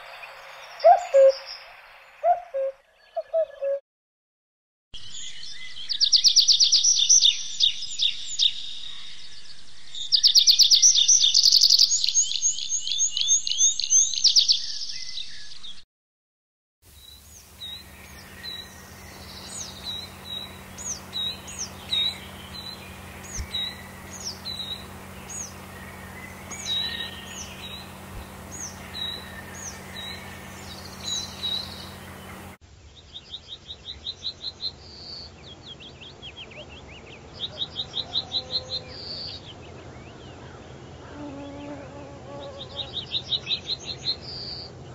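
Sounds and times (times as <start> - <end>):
bird trilled song: 0.0 - 3.8, 17.0 - 32.6
low steady hum: 17.0 - 32.6
bird fast repeated notes: 17.6 - 32.6.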